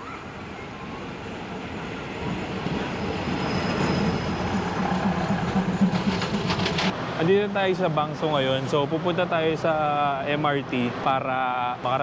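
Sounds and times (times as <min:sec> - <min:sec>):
diesel train engine and wheel rumble: 0:00.0 - 0:09.6
thin high squeal: 0:03.3 - 0:04.5.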